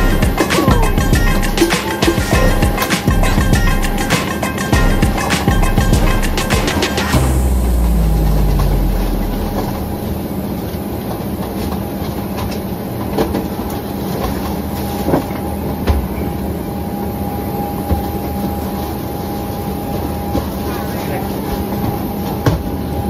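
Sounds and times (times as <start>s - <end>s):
vehicle interior rumble: 4.8s - 10.4s.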